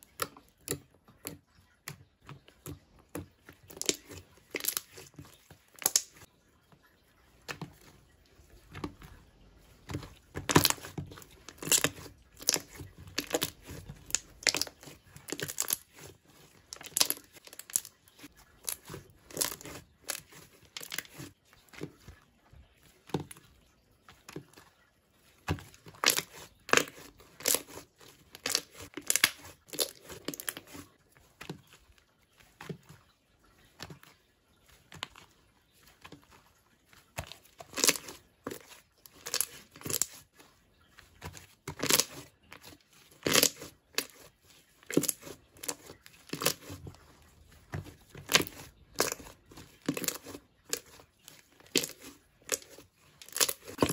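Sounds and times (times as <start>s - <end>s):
slime crackling and popping: 5.8s - 6.3s, 10.3s - 16.1s, 41.7s - 42.2s, 43.2s - 44.3s, 47.8s - 53.9s.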